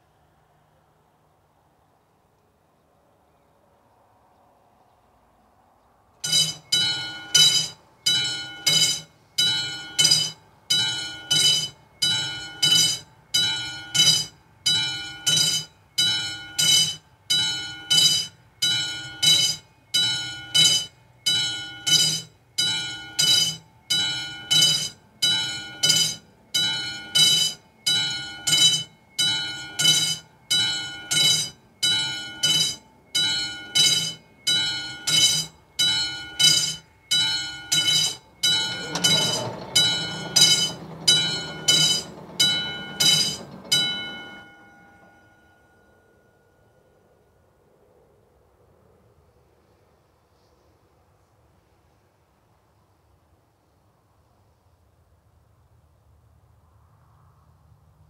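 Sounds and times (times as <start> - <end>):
level crossing bell ringing: 6.2 - 47.1.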